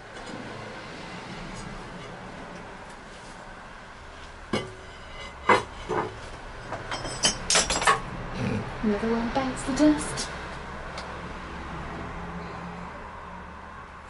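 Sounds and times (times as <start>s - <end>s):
ceramic mugs clinking: 6.8s - 8.0s.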